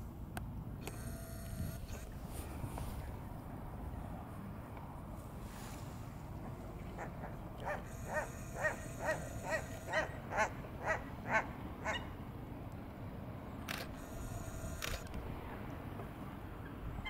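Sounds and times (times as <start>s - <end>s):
water bird calling: 6.8s - 12.2s
sharp clicks: 13.7s - 15.2s.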